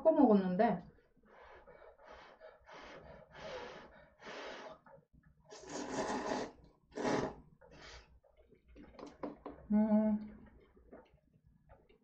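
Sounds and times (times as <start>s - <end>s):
person slurping noodles: 5.5s - 8.0s.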